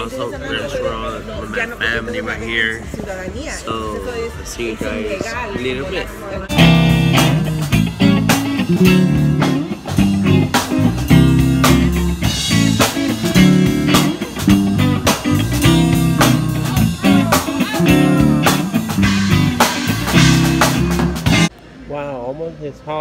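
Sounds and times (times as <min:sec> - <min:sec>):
drum kit beat: 0:06.4 - 0:21.5
bass guitar: 0:06.5 - 0:21.5
electric guitar: 0:06.5 - 0:21.5.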